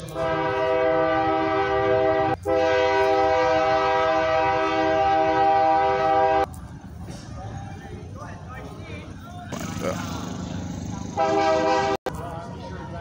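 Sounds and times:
horn blasts in a chord: 0.0s - 6.5s, 11.2s - 12.0s.

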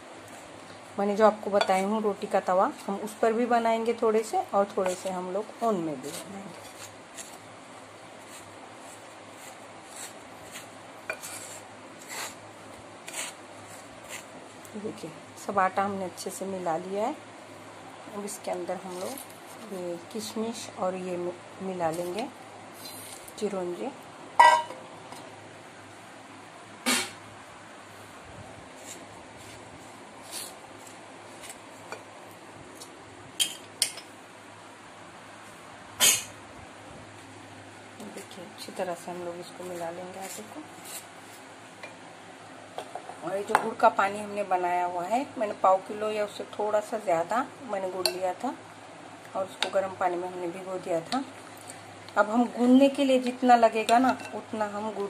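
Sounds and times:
spoon scraping dry flour: 4.7s - 7.4s, 8.2s - 12.4s, 13.0s - 14.3s, 39.6s - 41.1s
spoon knocking glass bowl: 24.4s - 24.8s.

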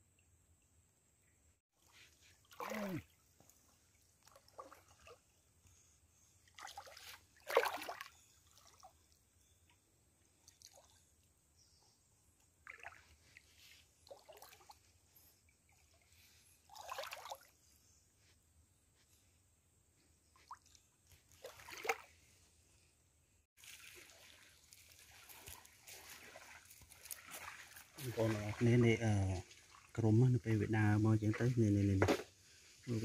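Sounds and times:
hands splashing in creek water: 1.8s - 5.3s, 6.5s - 8.9s, 12.6s - 14.8s, 16.6s - 17.6s, 20.4s - 22.2s, 23.6s - 29.9s.

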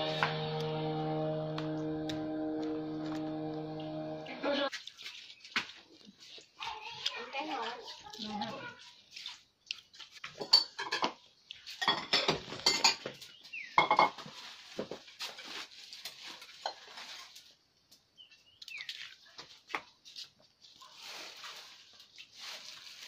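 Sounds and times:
dishes and cookware clattering: 10.2s - 15.4s, 16.5s - 17.0s
plastic bags rustling: 14.2s - 17.8s, 19.4s - 23.0s.

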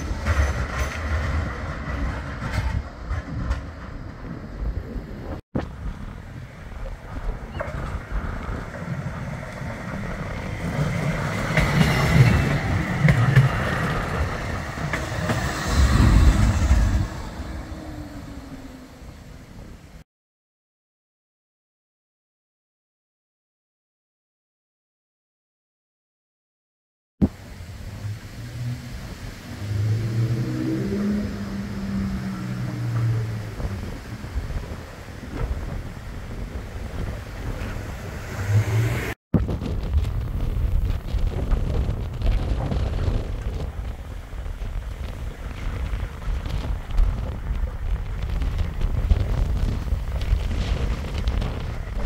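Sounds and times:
tram wheels rumbling on rails: 0.0s - 20.0s, 27.2s - 52.0s
sharp clacks over track: 9.5s - 17.0s.

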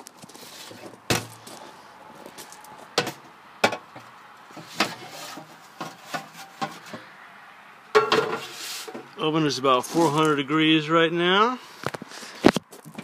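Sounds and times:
metal pan clatter: 8.0s - 8.5s.

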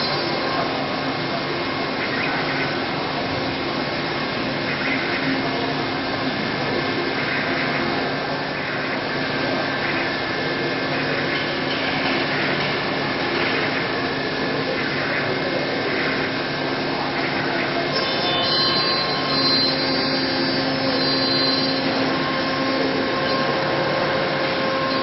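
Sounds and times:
cnc milling spindle cutting metal: 0.0s - 25.0s
faint steady tones: 13.8s - 25.0s.

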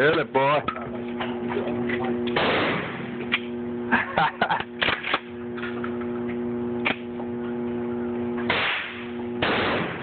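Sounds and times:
shotgun blasts echoing: 2.4s - 3.1s, 8.5s - 10.0s.

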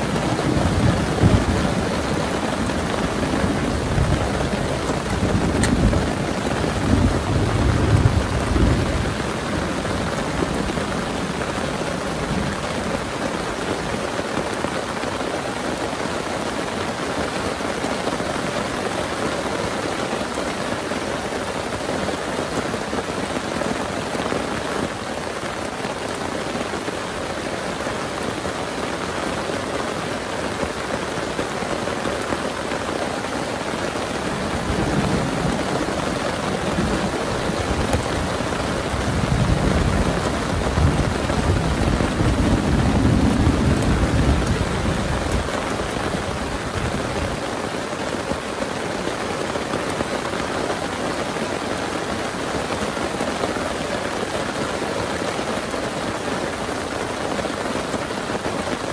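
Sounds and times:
low rumble of thunder: 0.0s - 13.1s, 34.5s - 47.4s
heavy rain pouring: 0.0s - 58.9s.

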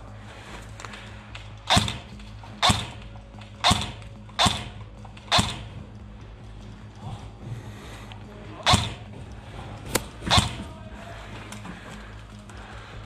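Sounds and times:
airsoft rifle shots: 1.6s - 5.8s, 8.6s - 9.2s, 9.9s - 10.8s.

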